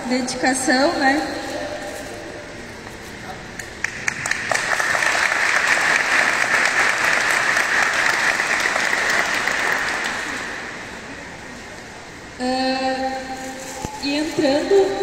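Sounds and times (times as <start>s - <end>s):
audience applauding: 3.8s - 10.9s.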